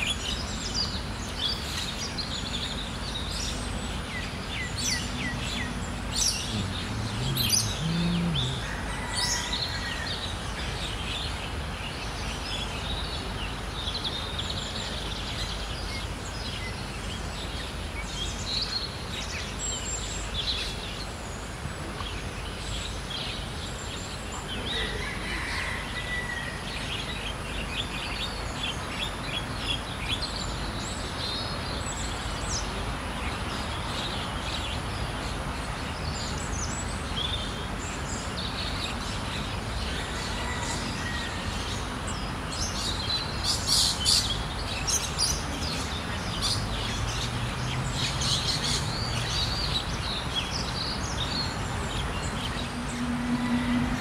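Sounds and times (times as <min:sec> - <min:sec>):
small birds chirping: 0:00.0 - 0:08.9.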